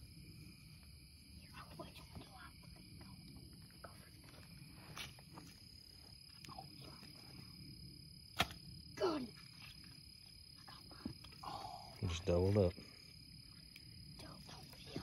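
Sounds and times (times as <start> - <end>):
night insects chirring: 0.0 - 15.0
sharp thwack of spear: 8.4 - 8.6.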